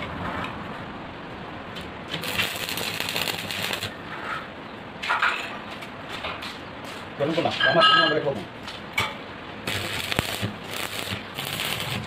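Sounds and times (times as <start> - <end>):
welding arc crackling: 2.1 - 4.0, 9.6 - 12.0.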